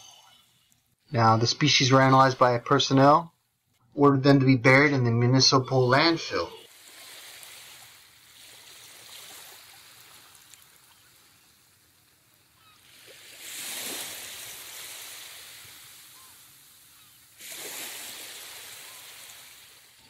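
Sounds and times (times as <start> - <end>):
ocean waves washing on sand: 6.6 - 20.0.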